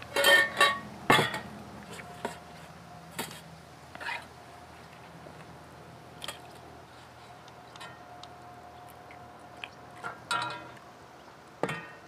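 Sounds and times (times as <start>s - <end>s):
metallic clatter with ring: 0.1s - 1.5s
soft wet crunching: 1.4s - 11.4s.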